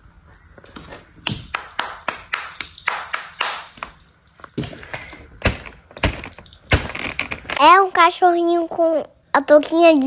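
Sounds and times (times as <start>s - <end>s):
child clapping hands: 1.2s - 4.0s.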